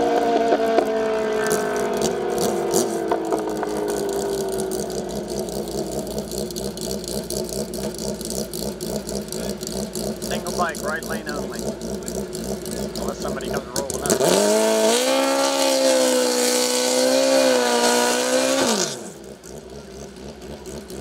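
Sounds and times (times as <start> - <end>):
racing motorcycles at full throttle: 0.0 - 21.0
motorcycle engine idling: 0.5 - 14.8, 19.1 - 21.0.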